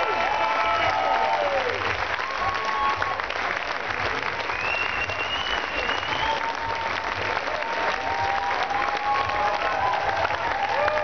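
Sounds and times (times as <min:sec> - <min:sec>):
crowd applauding: 0:00.0 - 0:11.0
high whistle: 0:04.5 - 0:06.6.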